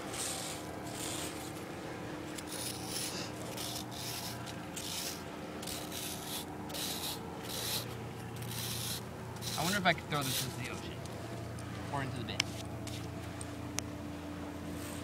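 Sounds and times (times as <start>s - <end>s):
metal scraping on sandstone: 0.0s - 1.6s, 2.4s - 10.7s.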